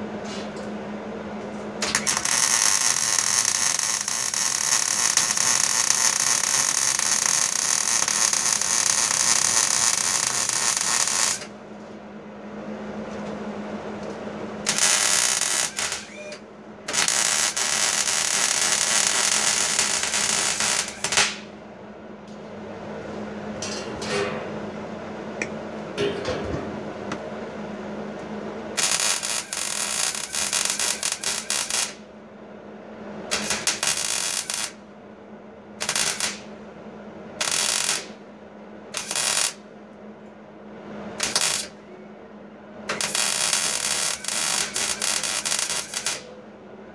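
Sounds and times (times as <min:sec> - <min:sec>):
arc welding crackling hiss: 0:01.8 - 0:11.5, 0:14.6 - 0:21.5, 0:28.8 - 0:32.0, 0:33.3 - 0:34.8, 0:35.8 - 0:36.5, 0:37.4 - 0:38.2, 0:38.9 - 0:39.6, 0:41.1 - 0:41.8, 0:42.9 - 0:46.3.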